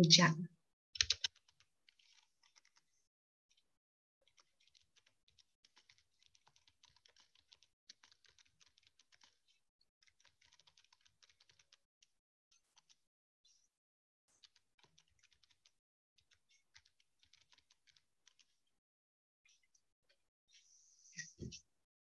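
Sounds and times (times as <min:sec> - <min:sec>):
typing on computer keyboard: 0:01.0 - 0:02.8, 0:04.2 - 0:11.8, 0:12.6 - 0:13.0, 0:14.4 - 0:18.6.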